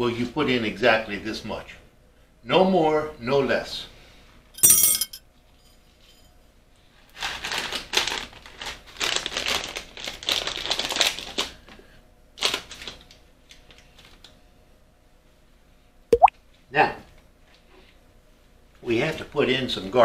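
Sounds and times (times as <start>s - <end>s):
plastic packaging crinkling: 7.5s - 11.4s.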